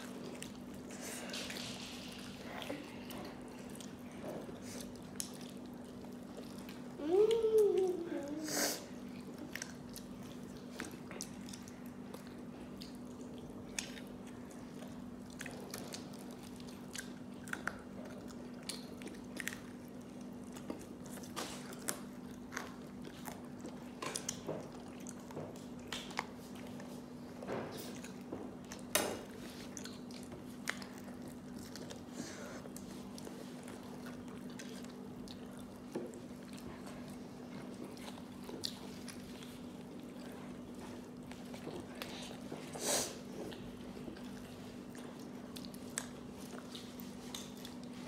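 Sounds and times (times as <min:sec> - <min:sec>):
chewing and crunching fried chicken: 0:00.0 - 0:48.0
steady low hum: 0:00.0 - 0:48.0.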